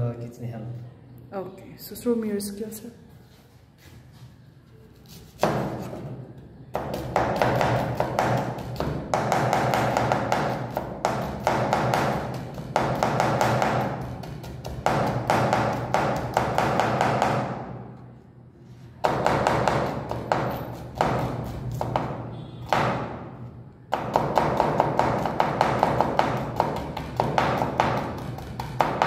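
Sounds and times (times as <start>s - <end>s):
knife chopping on wooden board: 19.0s - 23.1s, 23.9s - 29.0s.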